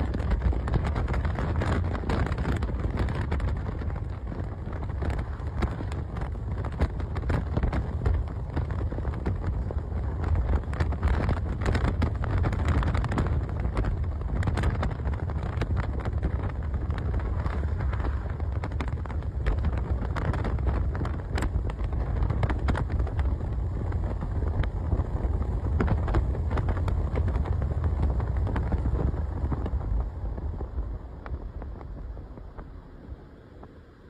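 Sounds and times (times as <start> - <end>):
microphone crackles: 0.0 - 32.8
wind and road noise in car: 0.0 - 34.0.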